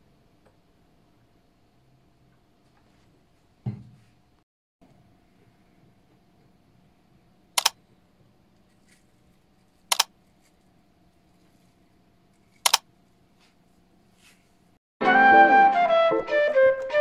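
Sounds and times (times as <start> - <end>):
sharp double clicks: 7.6 - 7.8, 12.6 - 12.8.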